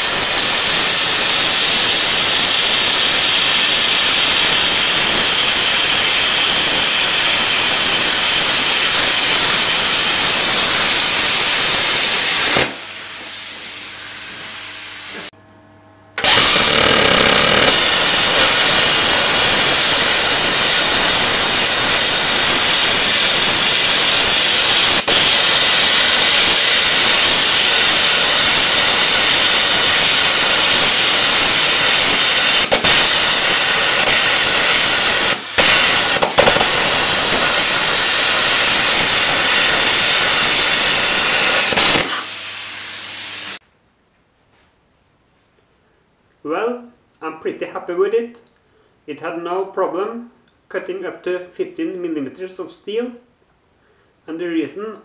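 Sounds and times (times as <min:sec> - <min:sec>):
plasma cutter hissing: 0:00.0 - 0:15.3, 0:16.2 - 0:43.6.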